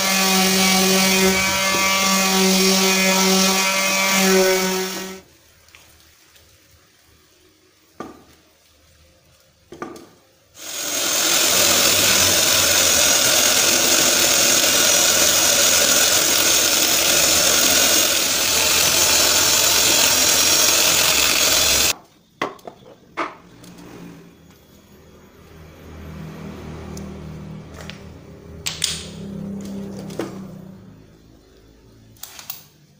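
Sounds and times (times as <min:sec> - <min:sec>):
angle grinder running: 0:00.0 - 0:05.2, 0:10.6 - 0:22.0.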